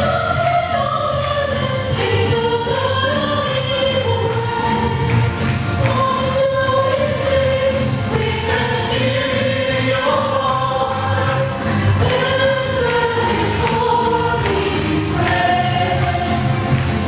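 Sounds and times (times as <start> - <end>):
choir singing a hymn: 0.0 - 17.0
instrumental bass accompaniment: 0.0 - 17.0.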